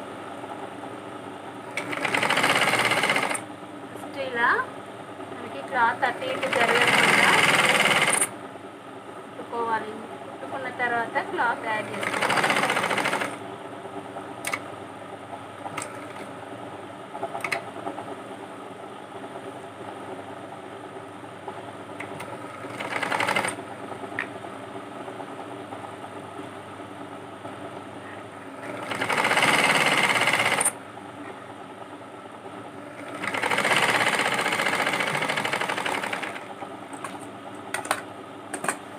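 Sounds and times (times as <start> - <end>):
sewing machine stitching: 1.7 - 3.4, 6.2 - 8.3, 11.8 - 13.4, 22.0 - 23.6, 28.6 - 30.8, 33.0 - 36.5.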